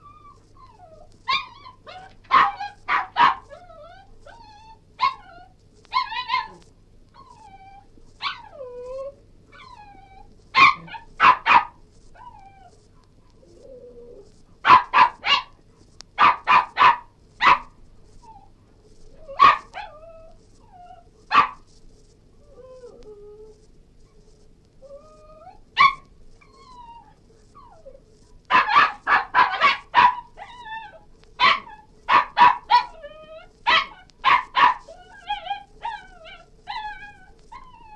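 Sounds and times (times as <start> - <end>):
dog whimpering: 0.0 - 6.6, 7.2 - 11.1, 22.4 - 23.6, 24.8 - 37.9
dog barking and yelping: 0.0 - 12.8, 14.2 - 15.6, 16.2 - 18.5, 19.1 - 21.7, 23.6 - 37.9.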